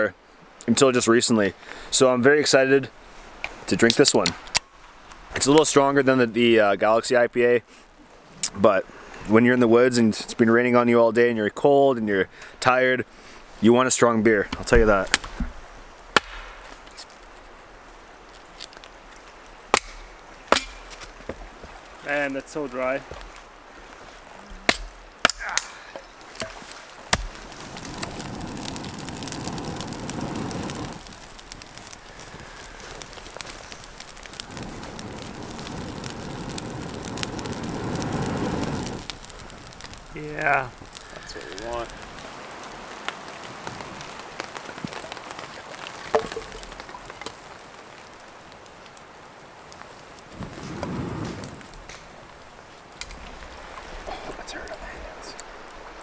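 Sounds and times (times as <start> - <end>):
campfire crackling: 0.0 - 56.0
light rain: 0.0 - 56.0
firewood knock: 16.2 - 16.7, 19.7 - 21.5, 24.5 - 27.4, 46.0 - 47.4
hatchet splitting wood: 19.7 - 21.0, 24.6 - 25.7.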